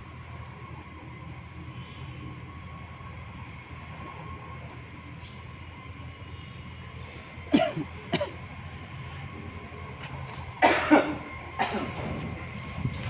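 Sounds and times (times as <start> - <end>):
steady low rumble: 0.0 - 13.0
person coughing: 7.5 - 8.4, 10.6 - 11.9.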